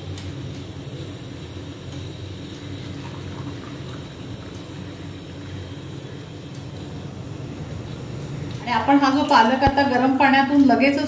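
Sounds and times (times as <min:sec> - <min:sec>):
water dripping and splashing: 0:00.0 - 0:10.2
steady low hum: 0:00.0 - 0:11.0.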